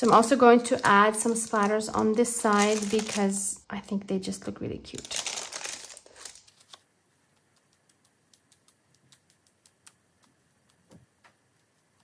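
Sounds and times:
paint splatter brush ticks: 7.2 - 12.0.

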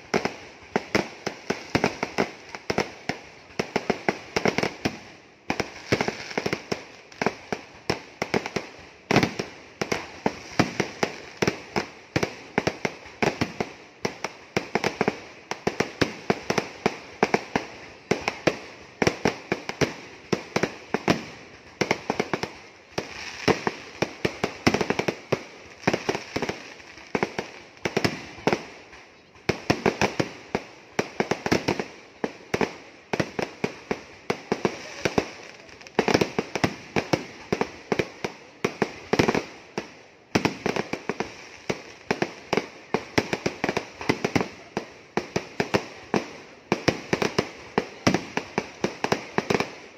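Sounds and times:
fireworks bangs and crackles: 0.0 - 49.9.

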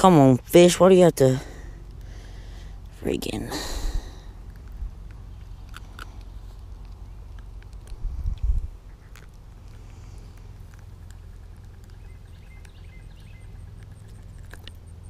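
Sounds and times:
low rumble with small clicks: 0.0 - 15.0
bird chirps: 11.6 - 15.0.

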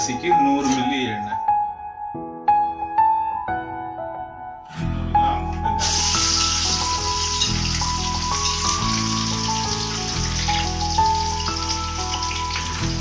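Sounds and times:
background music: 0.0 - 13.0
onions sizzling in hot oil: 5.8 - 13.0.

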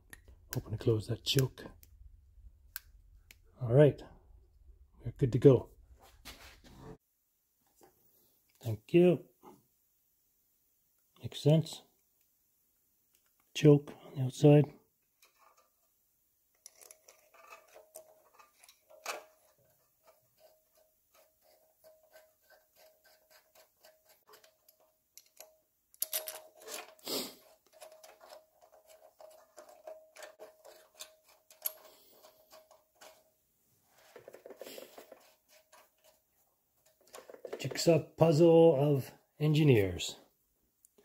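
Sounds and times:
tools clicking on metal: 21.8 - 27.0.

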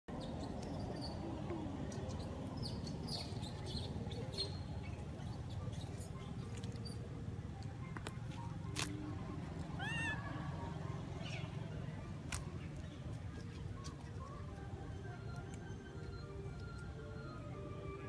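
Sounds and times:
steady low rumble: 0.2 - 17.6
baby monkey squeaking: 9.7 - 10.3.

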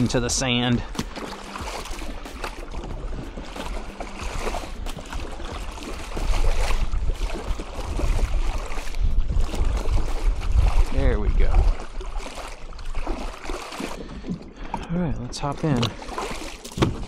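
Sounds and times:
water splashing around kayak: 0.0 - 17.0
knocks against plastic hull: 16.7 - 17.0.

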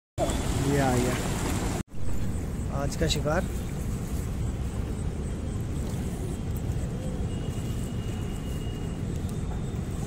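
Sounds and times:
low outdoor rumble: 0.2 - 10.0
faint high steady tone: 2.2 - 10.0.

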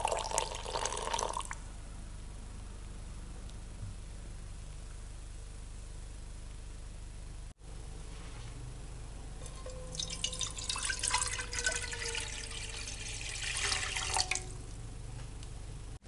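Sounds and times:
water pouring into a pot: 0.0 - 1.6, 9.6 - 14.6.

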